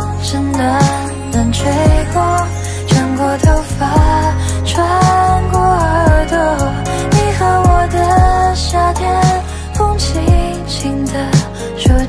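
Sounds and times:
bass line: 0:00.0 - 0:12.0
person singing: 0:00.0 - 0:12.0
deep drum beat: 0:01.9 - 0:02.3, 0:02.9 - 0:04.4, 0:05.0 - 0:08.6, 0:10.3 - 0:10.6.

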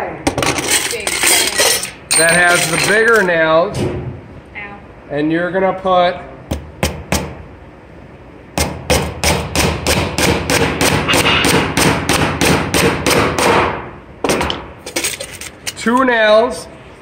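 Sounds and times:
hammer driving nail into wood: 0:08.6 - 0:14.6.

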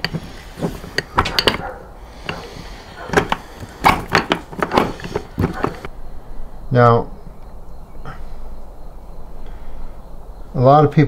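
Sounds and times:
metal parts knocking: 0:00.0 - 0:05.9.

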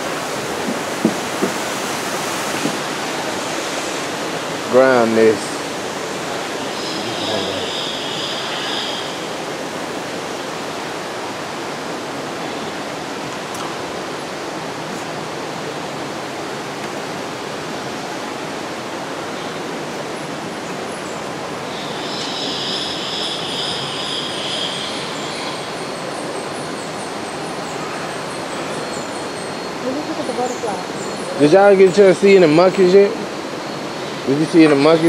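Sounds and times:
rushing hiss: 0:00.0 - 0:13.1.

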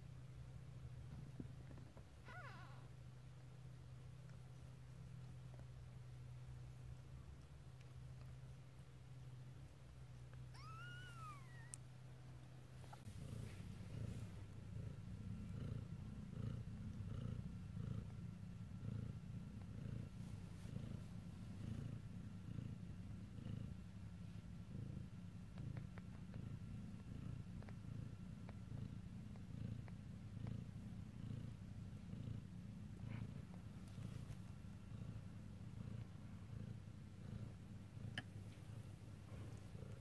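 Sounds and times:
cat purring: 0:00.1 - 0:40.0
kitten mewing: 0:10.5 - 0:11.8.

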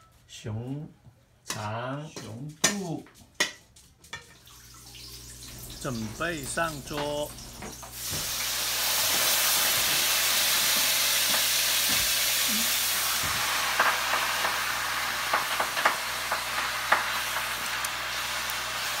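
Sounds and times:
meat sizzling in a pan: 0:04.5 - 0:19.0.

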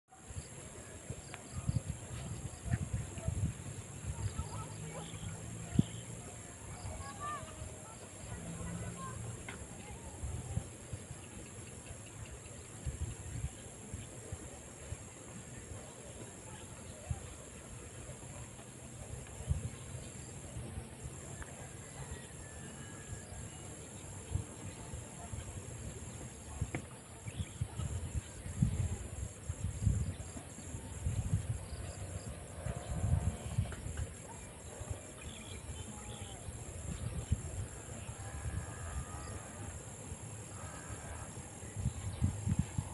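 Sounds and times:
insect chorus: 0:00.1 - 0:42.9
wind buffeting microphone: 0:00.2 - 0:42.9
insects chirring: 0:21.8 - 0:42.9.

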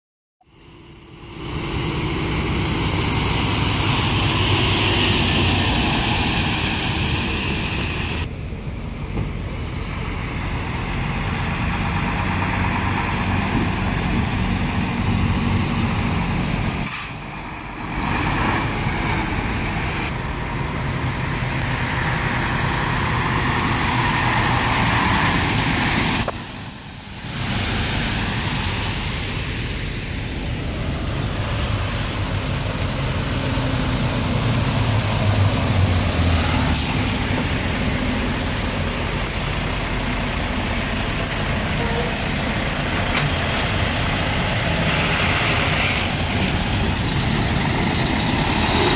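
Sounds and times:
truck diesel engines running: 0:00.4 - 0:48.9
tyre hiss on wet pavement: 0:02.6 - 0:08.3, 0:10.5 - 0:20.1.

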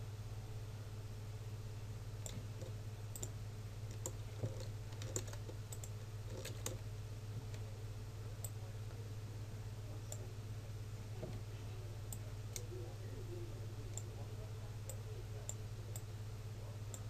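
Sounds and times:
mouse and keyboard clicks: 0:02.2 - 0:06.8.

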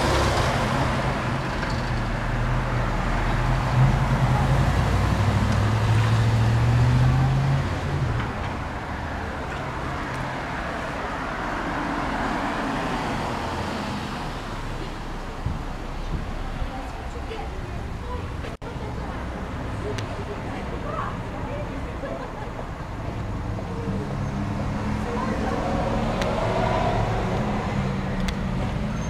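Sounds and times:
car passing: 0:00.0 - 0:16.8, 0:23.2 - 0:29.0.

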